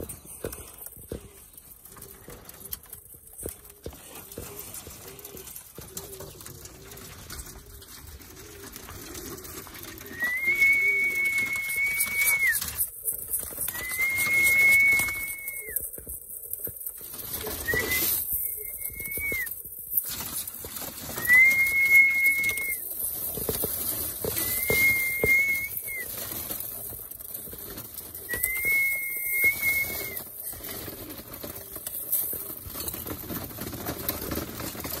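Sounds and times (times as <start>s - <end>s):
pigeons cooing: 0.0s - 15.8s, 17.2s - 35.0s
long level whistles: 10.2s - 12.6s, 13.7s - 15.8s, 21.2s - 22.8s, 24.4s - 26.0s, 28.3s - 30.2s.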